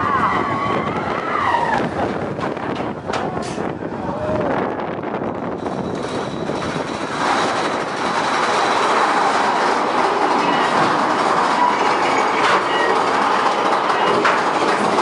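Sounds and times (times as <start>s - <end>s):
roller coaster cars rattling: 0.0s - 15.0s
faint wheel squeals: 11.4s - 13.2s.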